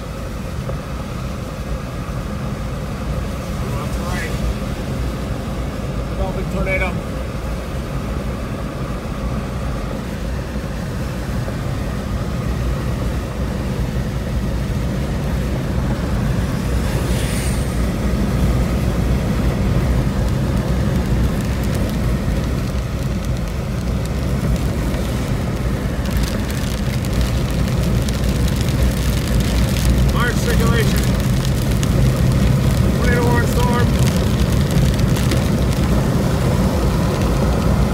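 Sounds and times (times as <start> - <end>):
car engine and road drone: 0.0 - 37.9
tyre and rain hiss: 15.8 - 37.9.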